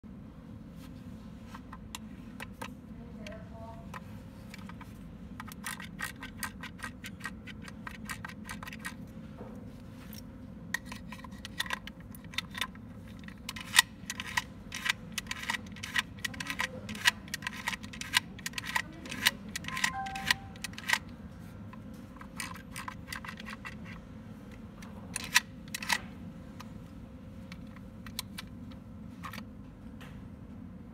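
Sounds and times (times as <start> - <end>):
metallic lock clicks: 13.6 - 21.0.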